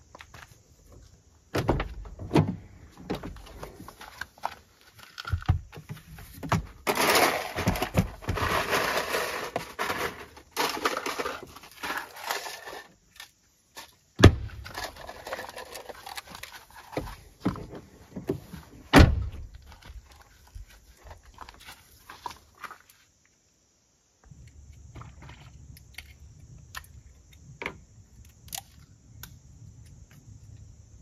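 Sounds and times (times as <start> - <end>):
gear rustling and clattering: 14.6 - 17.8.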